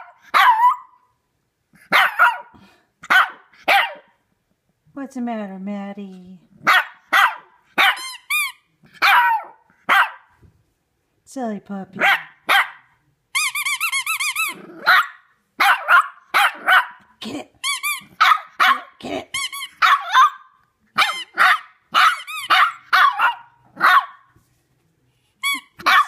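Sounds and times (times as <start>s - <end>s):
puppy barking high-pitched: 0.0s - 1.0s, 1.8s - 4.2s, 6.6s - 10.4s, 12.0s - 13.0s, 14.1s - 17.2s, 17.8s - 24.3s, 25.5s - 26.0s
rubber squeaky toy squeaks: 7.9s - 8.7s, 13.3s - 14.7s, 17.6s - 18.3s, 19.3s - 20.3s, 21.0s - 22.9s, 25.4s - 26.0s.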